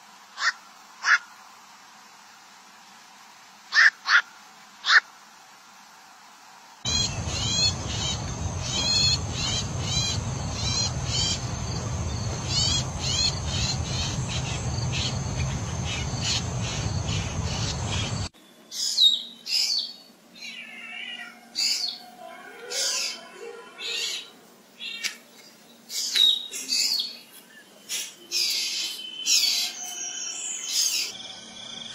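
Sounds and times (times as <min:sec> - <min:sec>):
low background rumble: 0:06.9 - 0:18.3
bird calling high notes: 0:06.9 - 0:18.9
sharp bird calls with pitch glides: 0:06.9 - 0:24.3.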